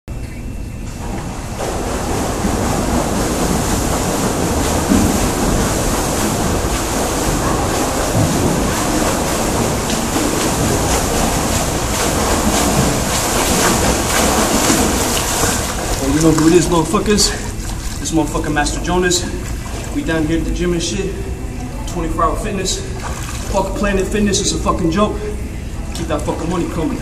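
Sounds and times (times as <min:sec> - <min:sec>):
swimming strokes splashing: 0:00.9 - 0:27.0
rushing water in pool: 0:01.0 - 0:24.5.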